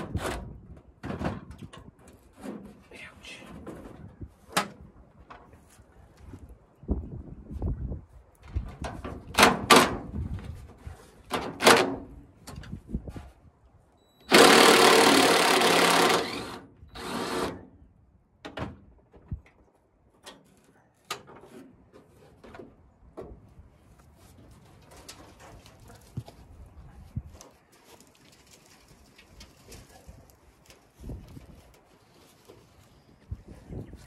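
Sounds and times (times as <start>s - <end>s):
cordless drill running: 14.3s - 17.6s.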